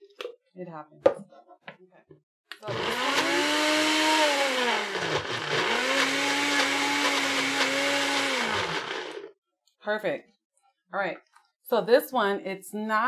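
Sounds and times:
blender motor pureeing: 0:02.6 - 0:09.3.

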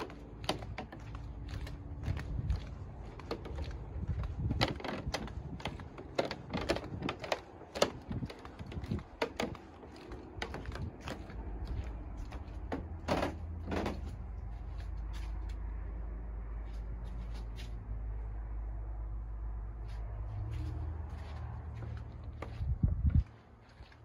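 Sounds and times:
footsteps on wooden boardwalk: 0:00.0 - 0:17.9, 0:19.6 - 0:24.0.

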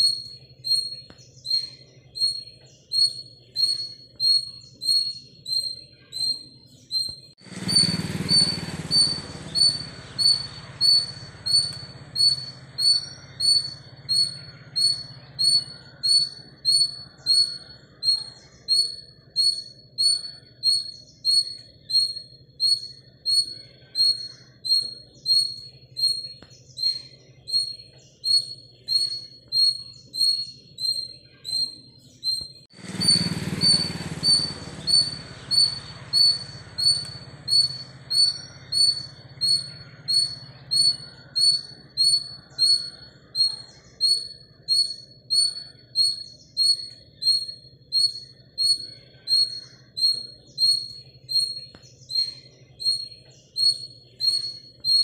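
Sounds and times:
small animal chirping: 0:00.0 - 0:55.0.

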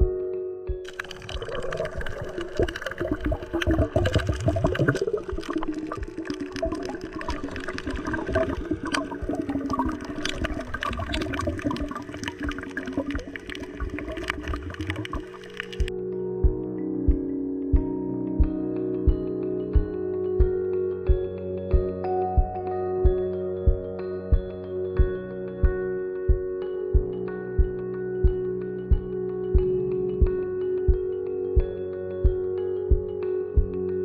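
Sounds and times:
underwater rushing and bubbling: 0:00.9 - 0:15.9.

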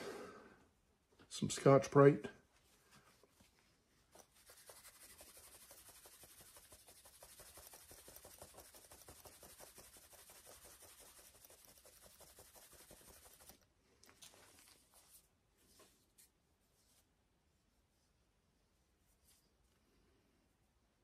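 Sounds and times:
abrasive pad scrubbing: 0:04.2 - 0:13.6.

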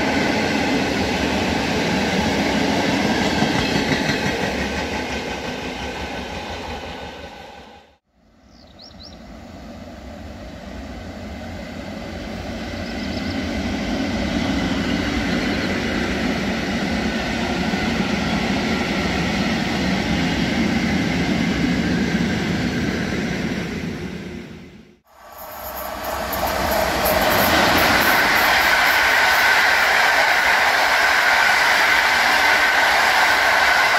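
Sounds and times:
passenger coaches passing: 0:25.1 - 0:33.9.

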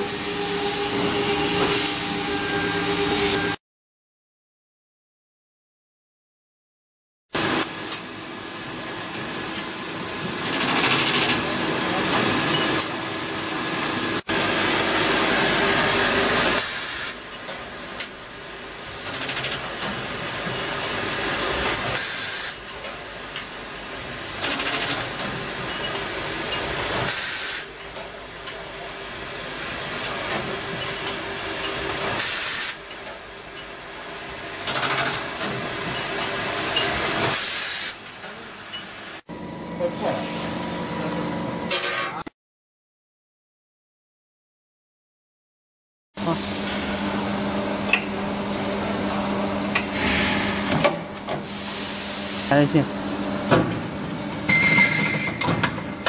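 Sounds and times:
machine hum: 0:00.0 - 0:03.6, 0:46.2 - 0:56.0
compressed air blasts: 0:37.3 - 0:38.0.

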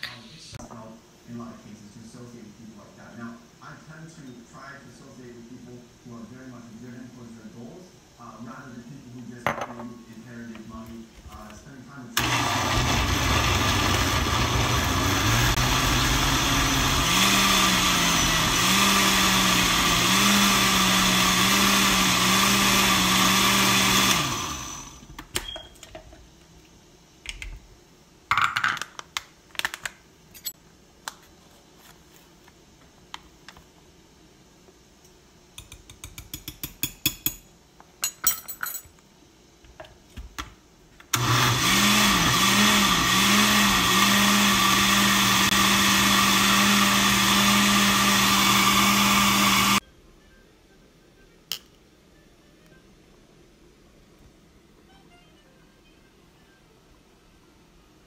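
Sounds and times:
blender motor running: 0:12.2 - 0:25.1, 0:41.2 - 0:49.8.

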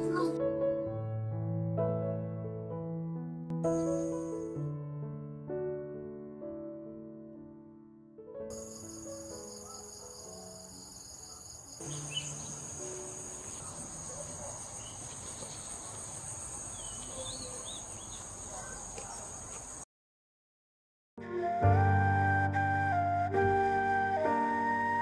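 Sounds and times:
soft piano music: 0:00.0 - 0:15.6, 0:21.2 - 0:25.0
insects chirring: 0:08.5 - 0:19.8.

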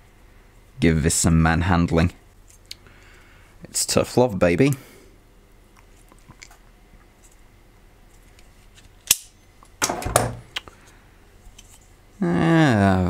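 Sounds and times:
pliers snapping: 0:09.0 - 0:09.3
pliers clicking on metal: 0:09.0 - 0:09.4.

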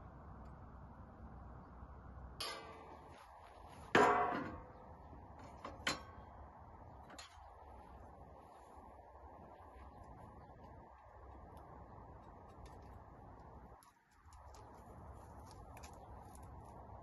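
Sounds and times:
metal tray clanging: 0:02.4 - 0:03.1, 0:03.9 - 0:04.7.

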